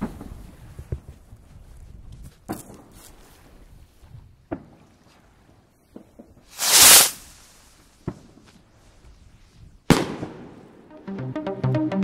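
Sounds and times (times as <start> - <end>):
sharp firework crack: 6.5 - 7.5
firework rocket whoosh: 6.5 - 7.7.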